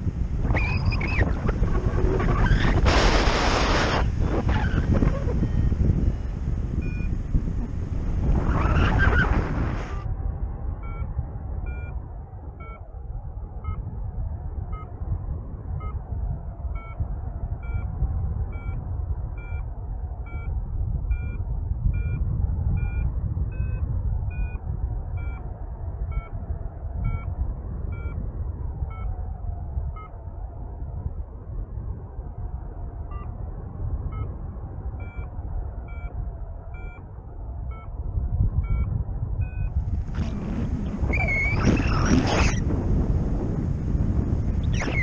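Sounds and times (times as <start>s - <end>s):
wind rumble on microphone: 0.0s - 45.0s
variometer beeping: 5.4s - 7.4s, 10.8s - 12.0s, 16.8s - 17.0s, 21.1s - 21.4s, 22.0s - 22.2s, 22.8s - 24.6s, 25.2s - 25.5s, 27.9s - 28.1s, 35.0s - 37.1s, 38.6s - 40.4s.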